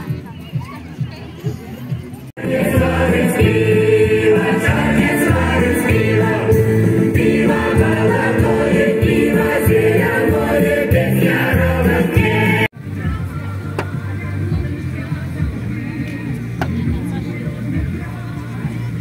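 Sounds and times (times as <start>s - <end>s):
folk ensemble singing in chorus: 2.3s - 12.7s
musical accompaniment with bass line: 2.4s - 19.0s.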